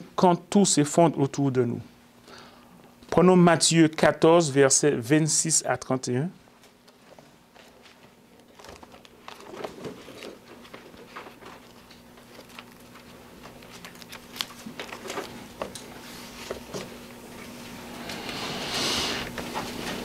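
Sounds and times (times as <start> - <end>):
steady low hum: 0.0 - 20.0
pages being turned: 7.0 - 16.9.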